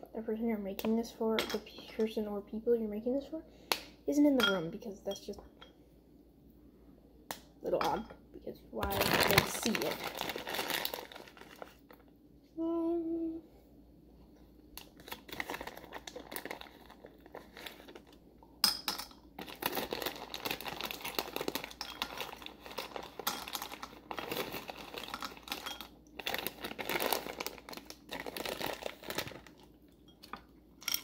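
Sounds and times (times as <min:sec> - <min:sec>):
plastic bag crinkling: 0:08.8 - 0:12.0, 0:14.8 - 0:18.2, 0:19.4 - 0:29.7.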